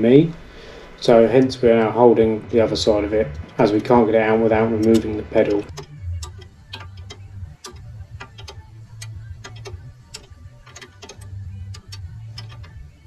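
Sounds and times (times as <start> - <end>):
low hum: 0.0 - 13.0
metallic clicks of tools: 4.9 - 12.8.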